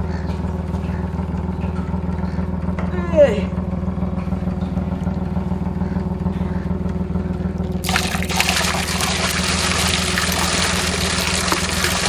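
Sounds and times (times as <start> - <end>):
low engine hum: 0.0 - 12.0
water poured from bucket splashing: 7.8 - 12.0.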